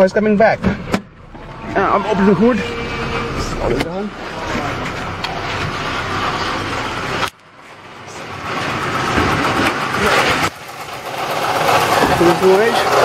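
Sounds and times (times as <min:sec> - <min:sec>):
bearing whine from transmission: 0:00.0 - 0:13.0
car engine idling: 0:00.0 - 0:13.0.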